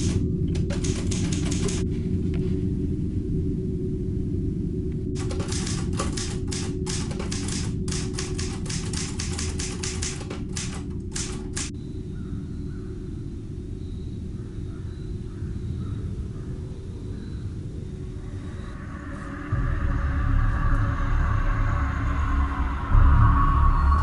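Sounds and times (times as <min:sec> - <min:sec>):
typewriter keys struck: 0:00.0 - 0:01.8, 0:05.2 - 0:11.7
low rumbling drone: 0:00.0 - 0:24.0.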